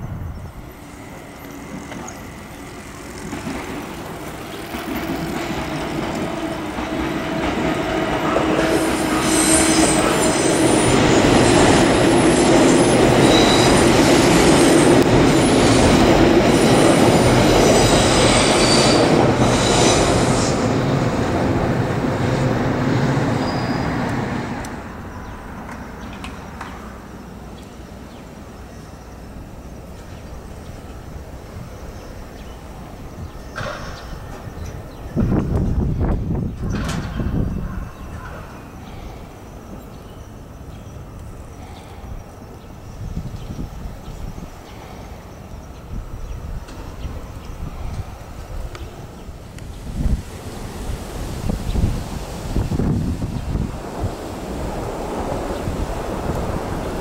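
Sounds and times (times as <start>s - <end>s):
train running past: 0.0s - 57.0s
high-pitched wheel squeal: 8.7s - 14.0s, 17.6s - 20.6s.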